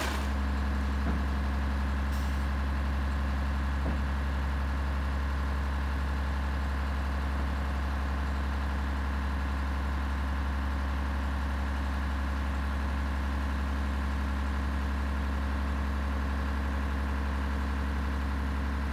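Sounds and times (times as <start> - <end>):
diesel truck engine idling: 0.0 - 18.9.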